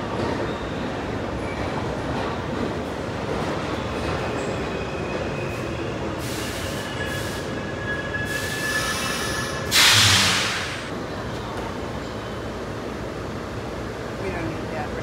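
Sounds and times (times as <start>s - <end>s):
subway car rumbling on track: 0.0s - 15.0s
high-pitched wheel squeals: 6.7s - 9.7s
loud hiss: 9.7s - 10.9s.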